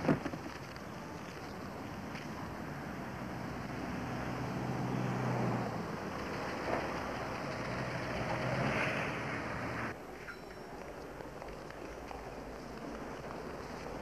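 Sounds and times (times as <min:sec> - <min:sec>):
vehicle engine hum: 0:00.0 - 0:10.0
passing cars: 0:01.6 - 0:10.0.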